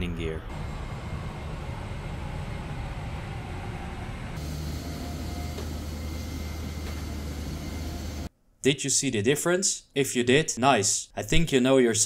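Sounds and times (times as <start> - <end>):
low hum: 0.4 - 8.3.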